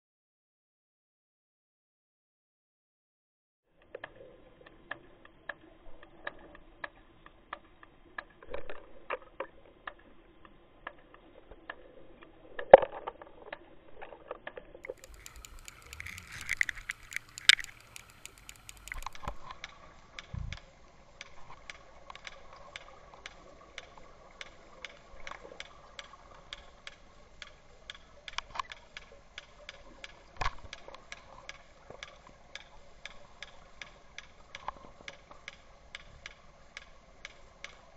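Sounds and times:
short clicks: 0:14.8 - 0:20.6
underwater hum: 0:14.8 - 0:37.9.

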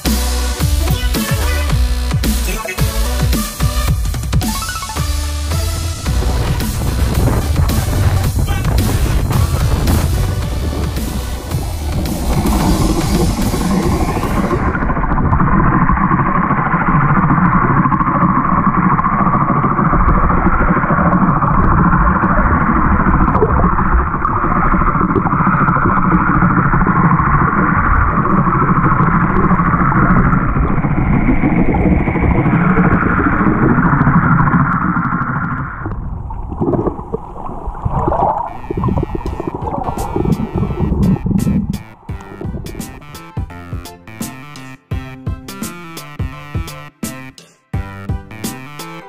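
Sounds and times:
muffled underwater drone: 0:05.5 - 0:44.2.

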